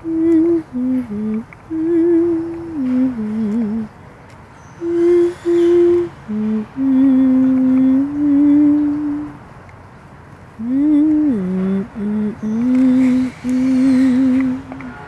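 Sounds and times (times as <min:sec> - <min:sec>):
person humming: 0:00.0 - 0:03.9, 0:04.8 - 0:09.4, 0:10.6 - 0:14.9.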